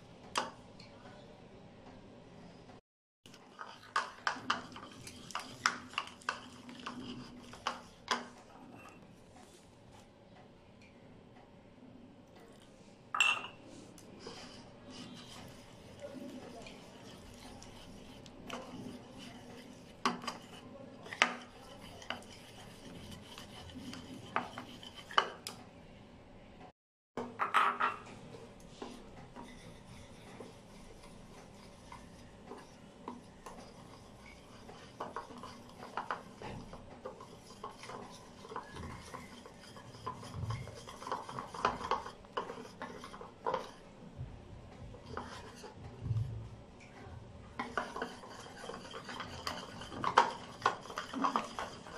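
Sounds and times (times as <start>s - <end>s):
fork stirring batter in a bowl: 3.3s - 10.1s, 13.4s - 25.6s, 28.4s - 51.9s.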